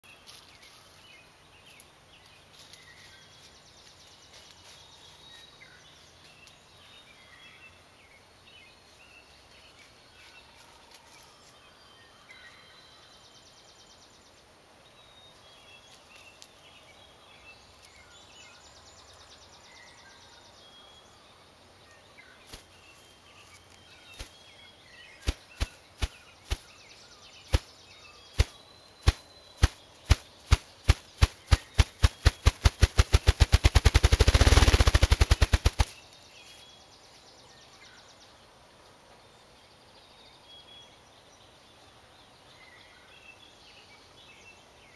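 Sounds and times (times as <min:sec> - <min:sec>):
grouse wing drumming thumps: 0:27.5 - 0:27.7, 0:28.4 - 0:35.9.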